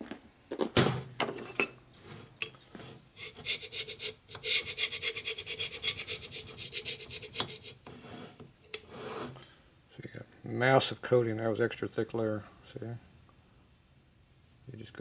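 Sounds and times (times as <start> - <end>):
scraper scraping metal cylinder: 1.9 - 9.4.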